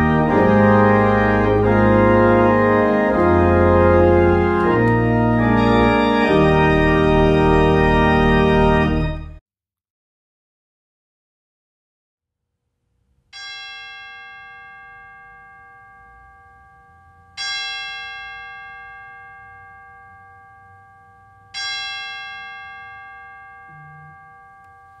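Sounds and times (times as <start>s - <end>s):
bell ringing: 13.4s - 25.0s.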